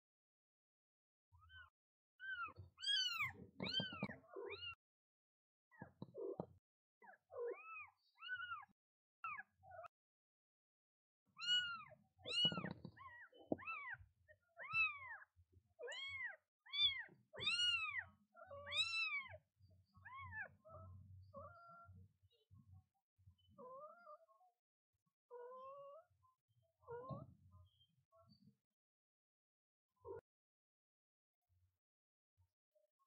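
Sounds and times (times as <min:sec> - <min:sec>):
kitten meowing: 0:02.2 - 0:04.8, 0:11.4 - 0:14.0, 0:14.6 - 0:15.2, 0:15.8 - 0:19.3.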